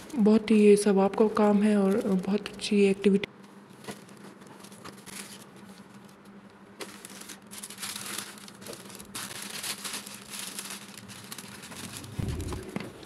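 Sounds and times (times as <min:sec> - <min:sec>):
faint steady hum: 0:00.0 - 0:13.0
paper rustling and crinkling: 0:01.2 - 0:02.5, 0:03.4 - 0:13.0.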